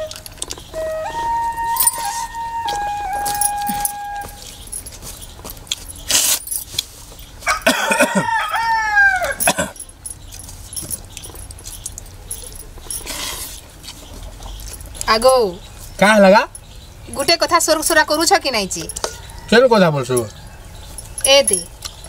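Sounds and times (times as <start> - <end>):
rooster crowing: 7.4 - 9.5, 18.9 - 20.9.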